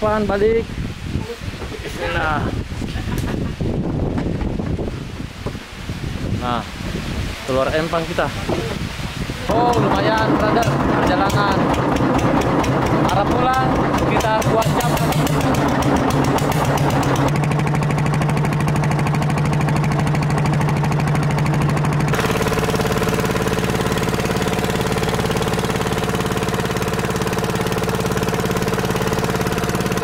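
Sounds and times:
boat engine chugging: 9.5s - 30.0s.

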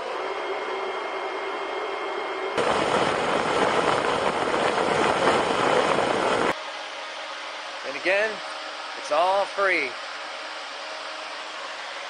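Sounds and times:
radiator fan whirring: 0.0s - 12.0s
air rushing over microphone: 2.6s - 6.6s.

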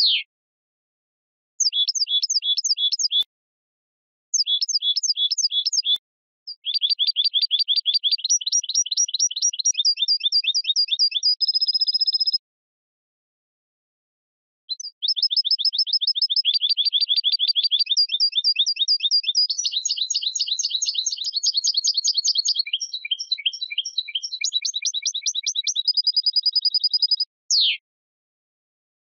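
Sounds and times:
goldfinch singing: 1.6s - 3.2s, 4.4s - 12.4s, 14.8s - 27.8s.

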